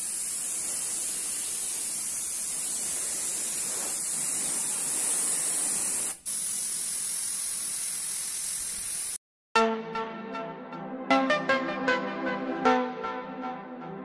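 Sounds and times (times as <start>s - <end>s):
paint spray gun hissing: 0.0s - 9.2s
music: 9.6s - 14.0s.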